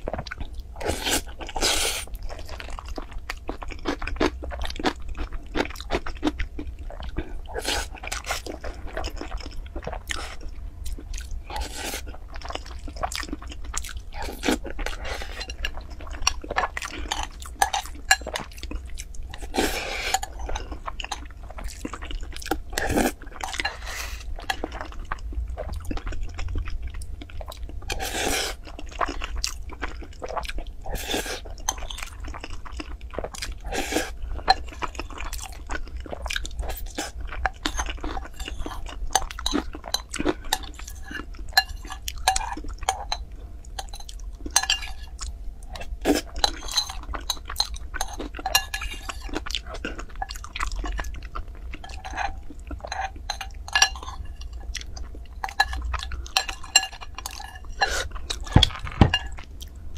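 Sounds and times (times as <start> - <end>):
person chewing food: 0.0 - 59.9
metal spoon clinking on glass bowl: 43.8 - 45.0, 46.4 - 49.0, 52.9 - 54.2.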